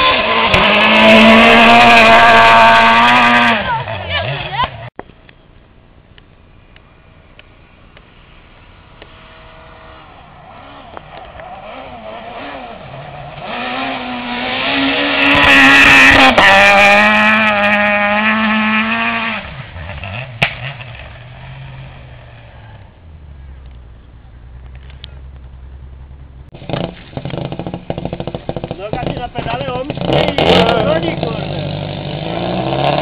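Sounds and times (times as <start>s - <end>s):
rally car engine passing at high revs: 0.0s - 4.9s, 8.3s - 33.0s
engine backfire crack: 19.9s - 21.3s, 24.6s - 33.0s.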